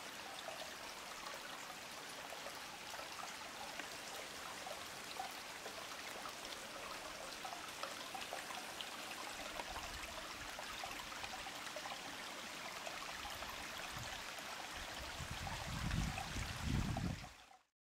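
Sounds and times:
stream flowing over stones: 0.0s - 17.7s.

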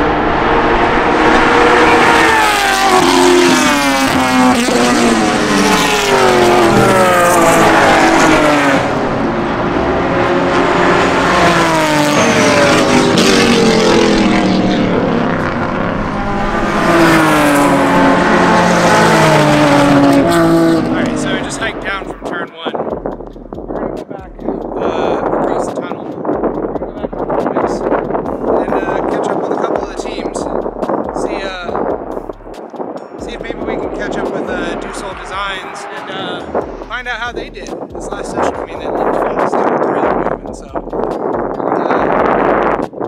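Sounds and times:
race cars passing at speed: 0.0s - 23.0s, 32.6s - 37.0s.

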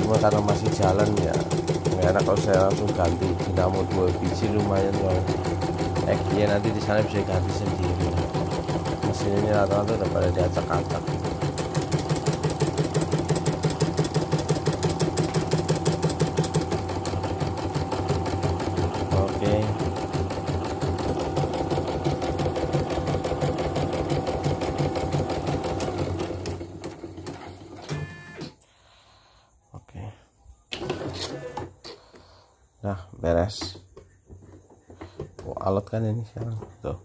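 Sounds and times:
embroidery machine clattering: 0.0s - 21.7s.

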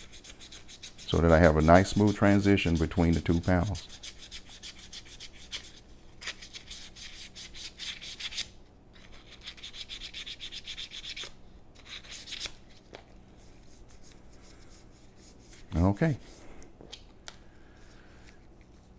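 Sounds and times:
sandpaper rubbing on wood: 0.0s - 5.7s.

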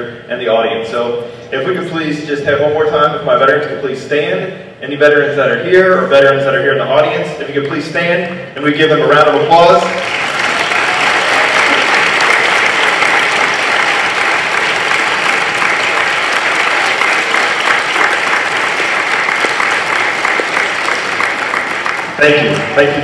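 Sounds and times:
audience applauding: 9.7s - 23.0s.

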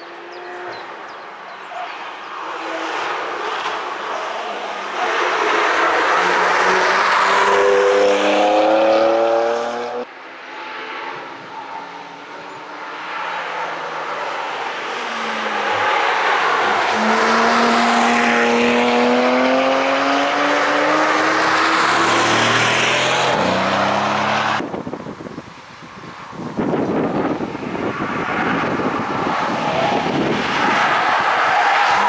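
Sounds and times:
car engine passing fast: 2.0s - 24.7s
tyre and wind noise: 15.4s - 32.0s.

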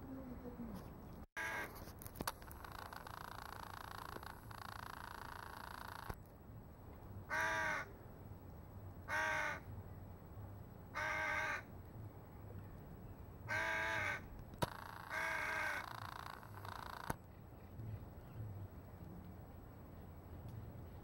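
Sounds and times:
crow cawing: 1.4s - 1.7s, 7.3s - 7.9s, 9.1s - 9.6s, 11.0s - 11.7s, 13.5s - 17.1s.

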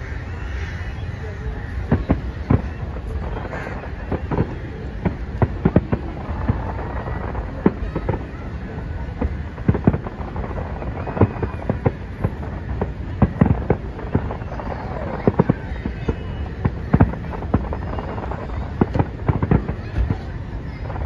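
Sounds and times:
steady background noise: 0.0s - 21.0s
fireworks bangs and crackles: 0.7s - 21.0s.

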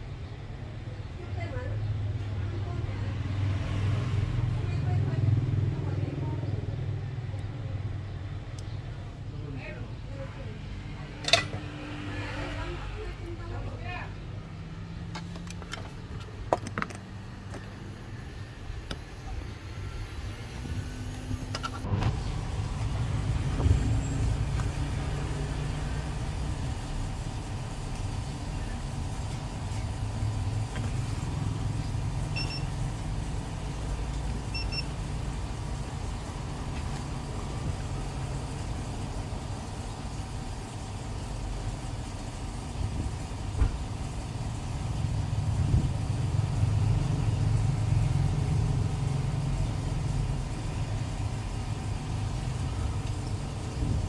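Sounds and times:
traffic rumble: 0.0s - 54.0s
short high beeps: 32.3s - 32.7s.

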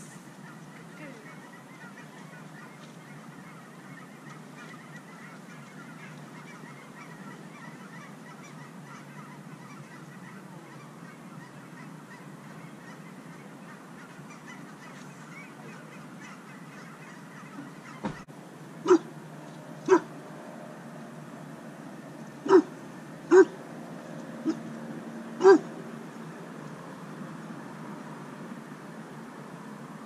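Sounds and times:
geese honking: 0.2s - 19.1s, 19.8s - 20.1s, 22.4s - 23.5s, 25.4s - 25.7s.

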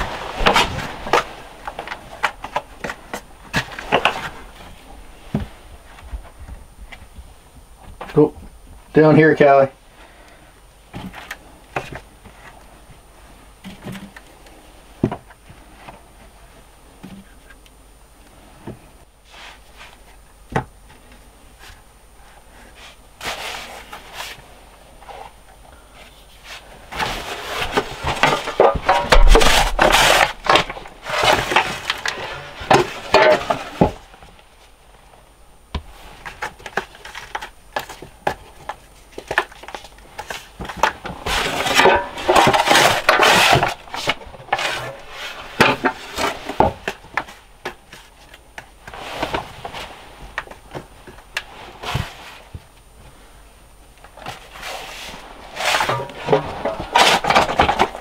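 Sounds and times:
shovel scooping and pouring sand: 22.7s - 24.5s, 26.4s - 33.8s, 54.5s - 58.0s.

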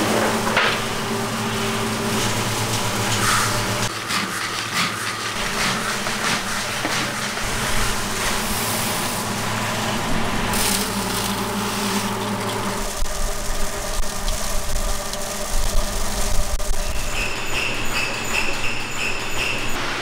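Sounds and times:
machine motor humming: 0.0s - 4.0s, 5.3s - 20.0s
beans rattling in a wok: 10.6s - 16.9s.

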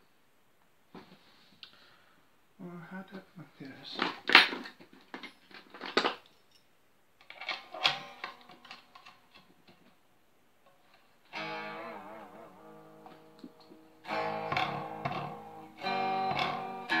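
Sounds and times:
electric guitar chord strummed: 11.3s - 17.0s
guitar handling knocks and rattles: 13.0s - 17.0s.

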